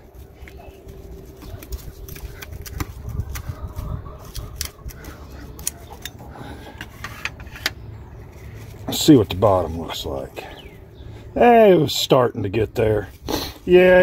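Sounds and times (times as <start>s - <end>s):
pizza cutter crunching crust: 0.9s - 5.9s.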